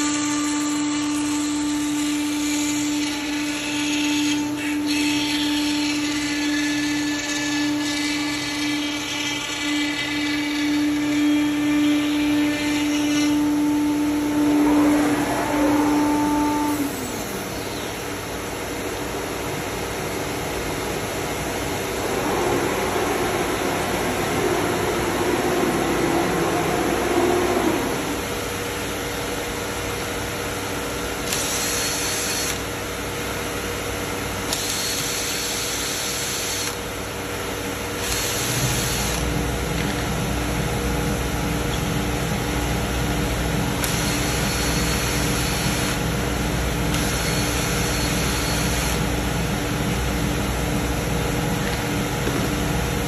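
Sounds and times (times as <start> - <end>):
cnc router machining wood: 0.0 - 30.7, 31.3 - 33.0, 33.6 - 53.0
deeper running sound: 20.5 - 28.6.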